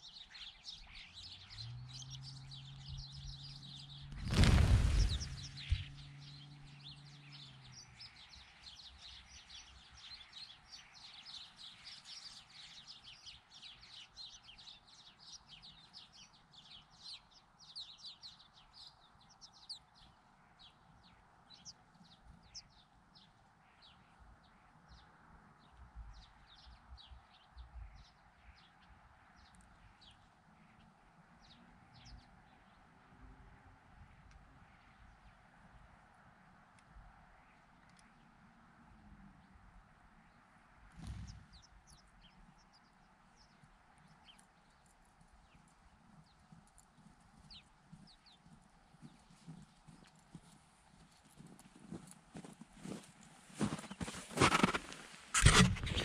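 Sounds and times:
birds chirping: 0:00.0 - 0:33.0, 0:40.2 - 0:56.0
burst of wingbeats: 0:04.1 - 0:06.0, 0:40.9 - 0:41.6, 0:53.6 - 0:56.0.

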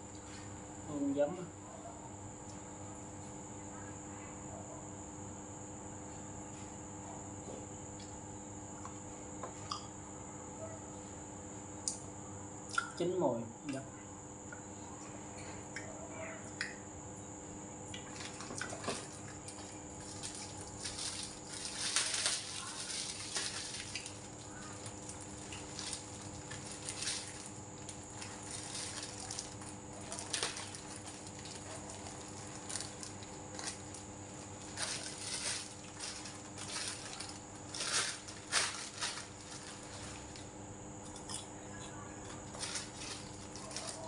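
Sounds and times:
steady low hum: 0:00.0 - 0:44.0
plastic bag crinkling: 0:19.1 - 0:40.4, 0:42.4 - 0:44.0.

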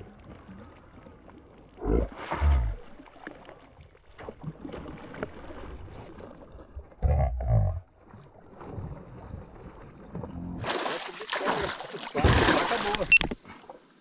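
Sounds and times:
fish splashing at water surface: 0:10.6 - 0:13.3.

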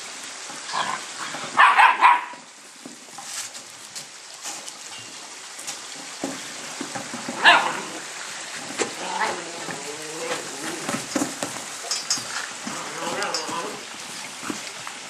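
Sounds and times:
puppies barking: 0:01.6 - 0:02.4, 0:07.4 - 0:08.0.

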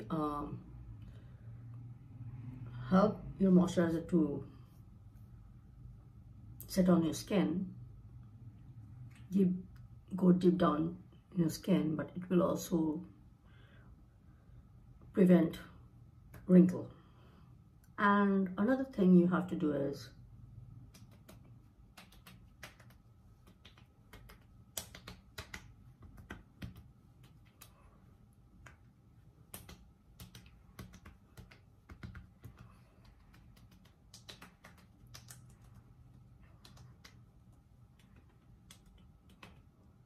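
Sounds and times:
hands patting and rubbing skin: 0:20.7 - 0:40.0.

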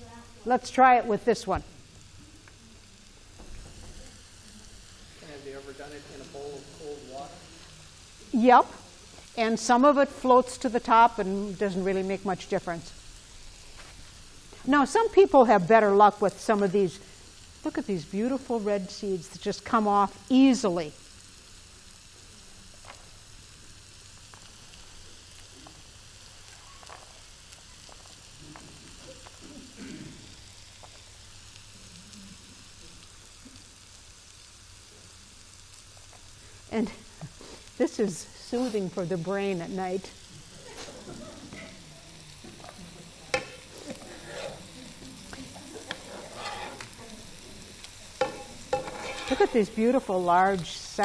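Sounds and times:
room tone hiss: 0:00.0 - 0:51.0
pomegranate seeds crackling: 0:00.4 - 0:51.0
seeds pattering onto platter: 0:22.6 - 0:29.5, 0:30.4 - 0:35.1, 0:38.4 - 0:51.0.

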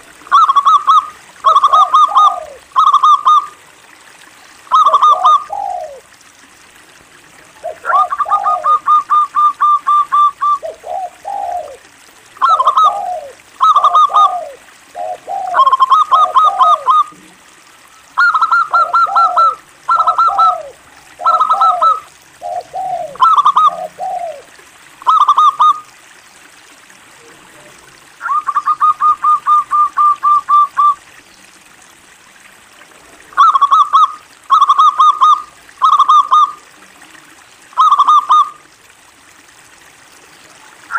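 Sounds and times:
dove cooing: 0:00.3 - 0:03.6, 0:04.7 - 0:06.1, 0:07.6 - 0:17.4, 0:18.1 - 0:25.8, 0:28.2 - 0:31.0, 0:33.3 - 0:36.7, 0:37.8 - 0:38.6.

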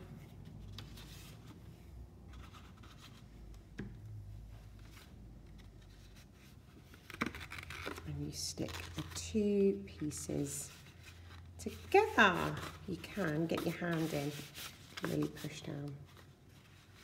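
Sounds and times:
paper being handled: 0:04.8 - 0:17.0.

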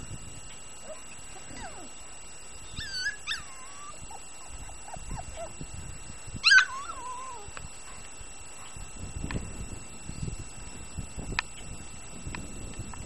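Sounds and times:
puppies whining: 0:00.7 - 0:08.9
puppies yipping: 0:00.8 - 0:05.6, 0:06.4 - 0:08.8.

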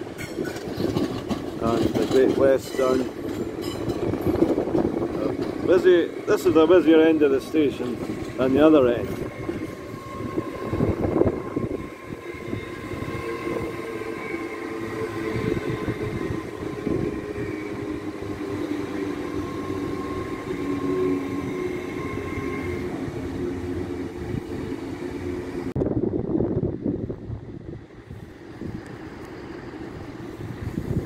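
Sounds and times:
train wheels clacking: 0:00.0 - 0:11.0
train drone with whine: 0:00.0 - 0:31.0.

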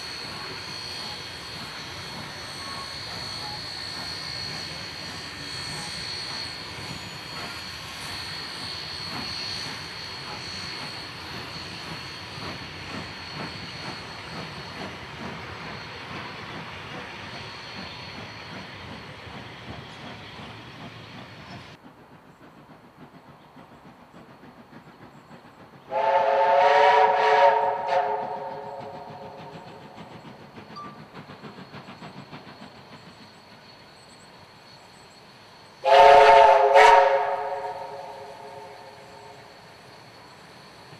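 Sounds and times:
steam locomotive whistle: 0:00.0 - 0:11.9, 0:25.9 - 0:29.8, 0:35.8 - 0:40.2
distant locomotive chuffing: 0:00.0 - 0:40.9.

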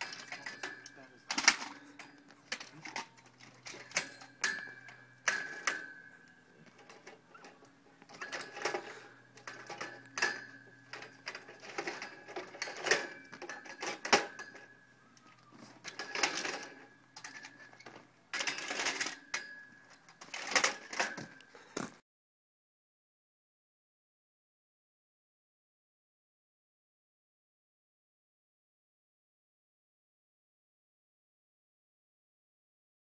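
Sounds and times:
metallic ring: 0:00.0 - 0:21.6
scooters clattering against metal rack: 0:00.0 - 0:22.0.

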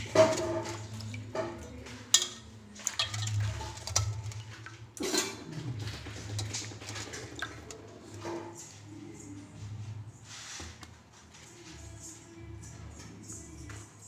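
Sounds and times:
fish clinking against metal bowl: 0:00.0 - 0:08.8
water sloshing and splashing: 0:00.0 - 0:08.9.

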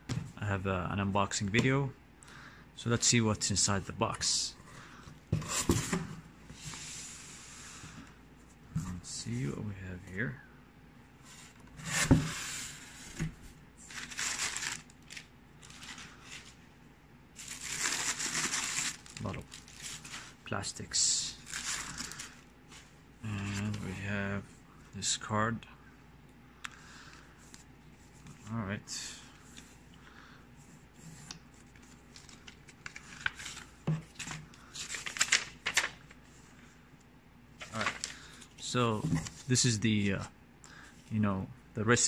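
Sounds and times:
bubble wrap crinkling: 0:13.8 - 0:16.6, 0:17.4 - 0:20.4, 0:21.4 - 0:22.5.

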